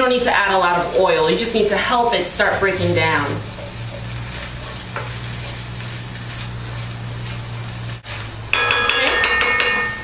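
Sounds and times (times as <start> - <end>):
meat sizzling in a pot: 0.0 - 10.0
utensil scraping metal pot: 1.6 - 5.8.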